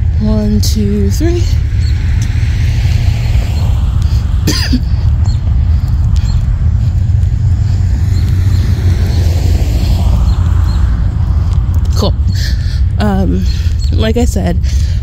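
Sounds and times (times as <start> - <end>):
wind buffeting microphone: 0.0 - 15.0
person clearing throat: 4.4 - 4.9.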